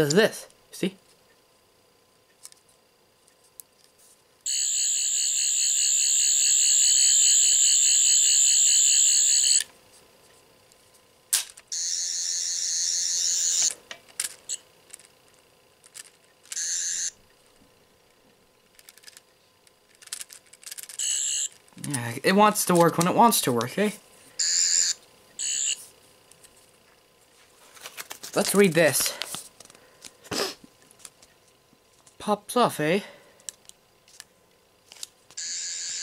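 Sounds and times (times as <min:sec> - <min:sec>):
toy warbling electronic buzz: 0:04.5 - 0:09.7, 0:11.7 - 0:13.8, 0:16.5 - 0:17.2, 0:20.8 - 0:21.6, 0:24.4 - 0:25.9, 0:35.4 - 0:36.0.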